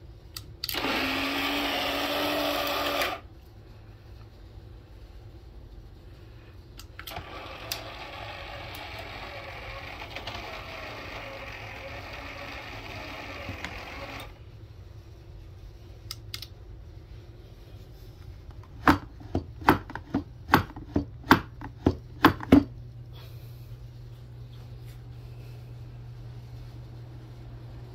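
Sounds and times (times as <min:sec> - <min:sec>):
small gear motor running: 0:07.1 - 0:14.3.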